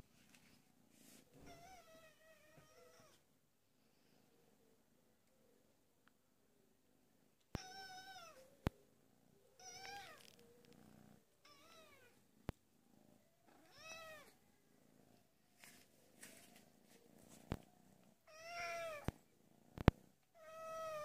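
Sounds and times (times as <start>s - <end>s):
cat meowing: 7.6s - 8.4s, 18.3s - 19.1s, 20.4s - 21.0s.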